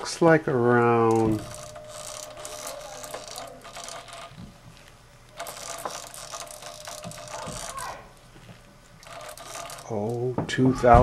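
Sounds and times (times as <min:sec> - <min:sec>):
lathe gears clicking and rattling: 0:01.0 - 0:08.3, 0:09.0 - 0:10.4.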